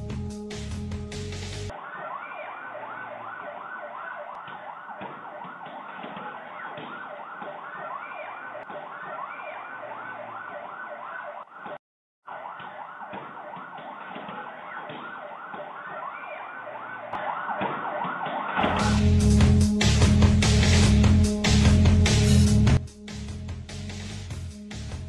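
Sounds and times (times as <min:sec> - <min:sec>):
background music: 0:00.0 - 0:03.3, 0:18.6 - 0:25.0
street noise: 0:01.2 - 0:22.0
siren yelping: 0:01.7 - 0:19.4.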